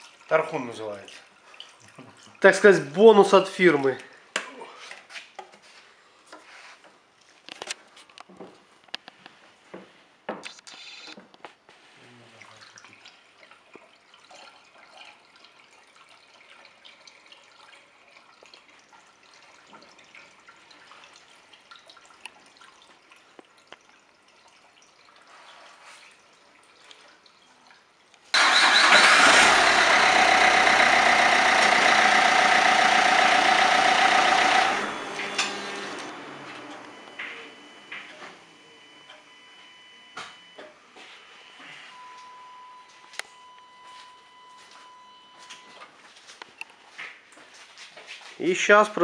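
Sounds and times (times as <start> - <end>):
diesel engine running: 28.4 - 38.8.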